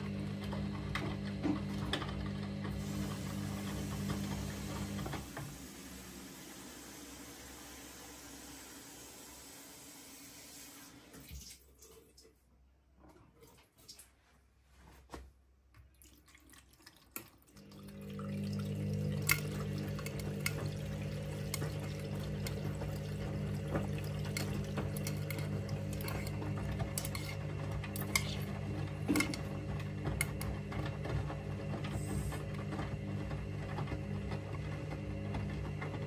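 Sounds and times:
washing machine motor hum: 0.0 - 11.8, 15.8 - 36.0
wet laundry tumbling and sloshing: 15.8 - 36.0.

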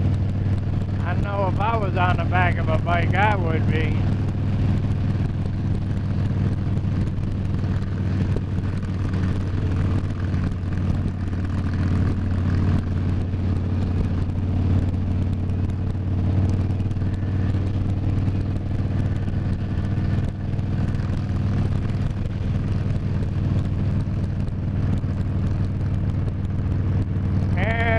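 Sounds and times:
motorcycle engine cruising: 0.0 - 27.9.

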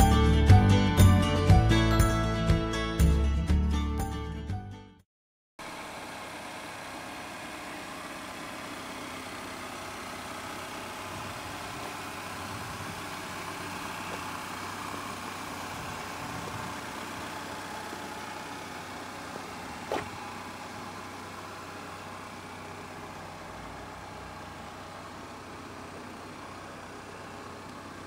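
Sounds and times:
car engine idling: 5.6 - 28.0.

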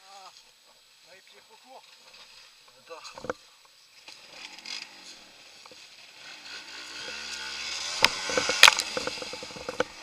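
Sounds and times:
motorcycle engine: 4.0 - 10.0.

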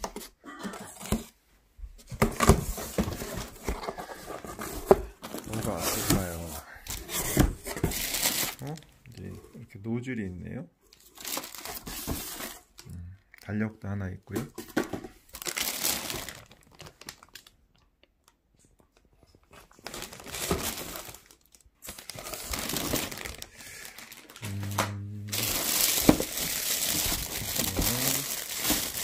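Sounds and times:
plastic bags crinkling: 3.3 - 6.5, 7.7 - 9.3, 11.0 - 12.8, 15.3 - 17.8, 19.5 - 29.0.

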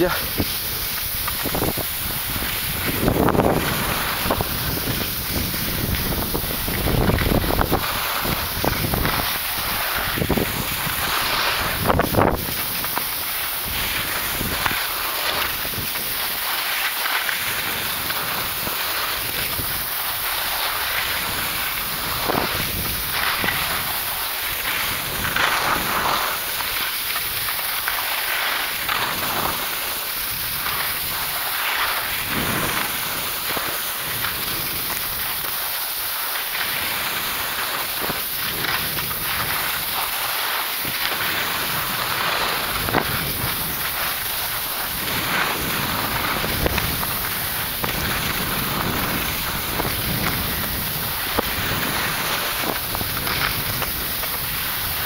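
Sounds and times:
wind on microphone: 0.0 - 13.0, 17.5 - 24.2, 32.0 - 33.2, 40.8 - 55.0
skis sliding on snow: 0.0 - 55.0.

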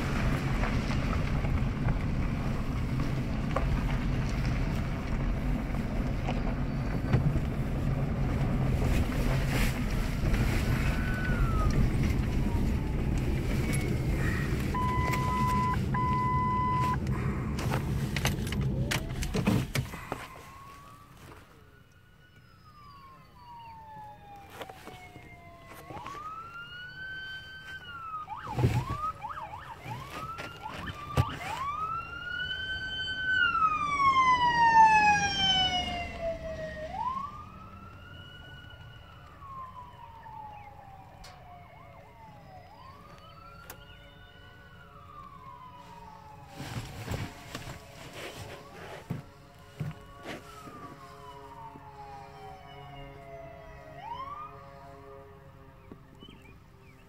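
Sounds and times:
emergency siren wailing: 0.0 - 57.0
truck engine and road noise: 0.0 - 57.0
short steady beep: 14.8 - 17.0.

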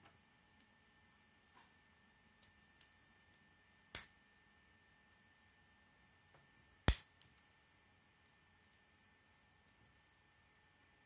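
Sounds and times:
plastic pieces snapping together: 6.9 - 7.4.

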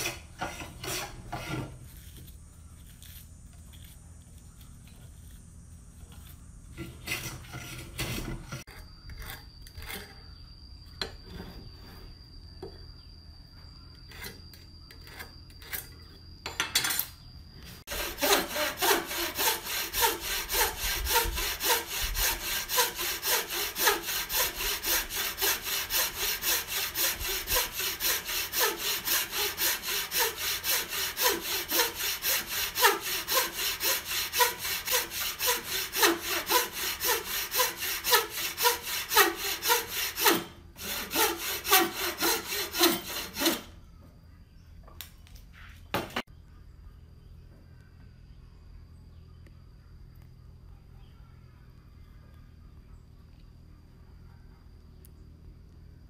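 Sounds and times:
saw cutting wood: 0.0 - 2.0, 6.8 - 10.1, 17.8 - 43.8.

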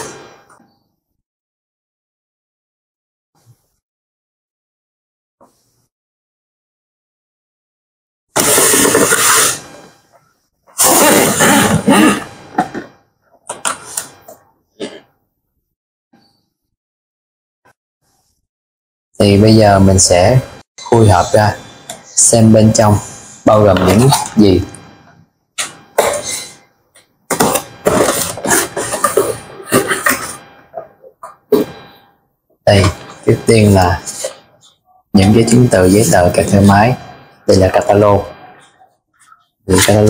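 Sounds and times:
cardboard packaging scraping: 8.4 - 9.7.

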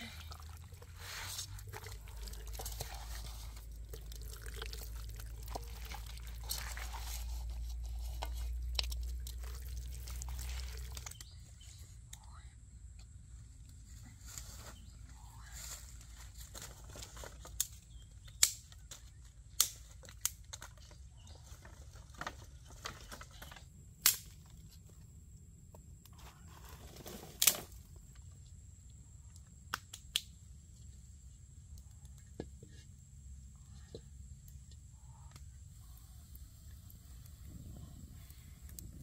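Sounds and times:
faint high-pitched hum: 0.0 - 19.4
sticks knocking and snapping: 17.4 - 20.8.

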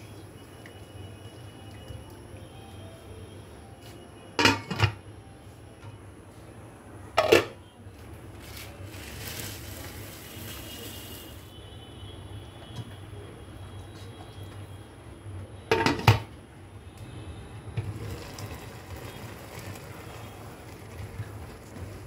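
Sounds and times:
cooking pot clanking: 4.4 - 5.0
rice poured into pot: 8.4 - 11.5, 17.9 - 22.0.

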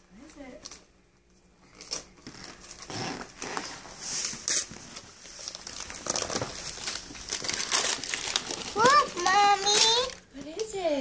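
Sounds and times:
tissue paper rustling: 1.7 - 10.2.

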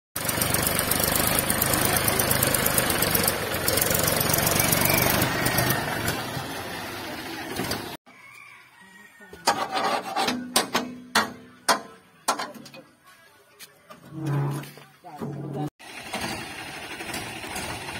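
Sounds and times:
tractor diesel engine straining: 0.2 - 8.0, 14.0 - 17.9.

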